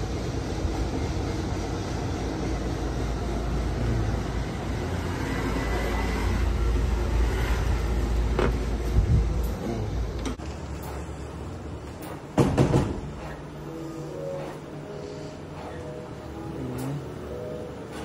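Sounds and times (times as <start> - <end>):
street traffic rumble: 0.0 - 18.0
sharp knocks: 12.3 - 13.2.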